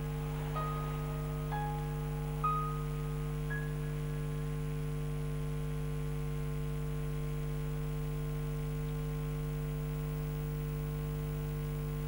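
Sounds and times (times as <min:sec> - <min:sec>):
faint hiss: 0:00.0 - 0:04.5
electrical mains hum: 0:00.0 - 0:12.0.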